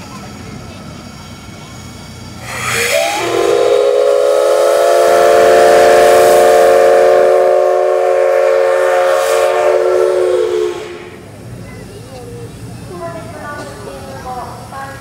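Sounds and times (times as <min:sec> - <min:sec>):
steam hissing: 0:00.0 - 0:15.0
steam whistle blast: 0:02.4 - 0:11.2.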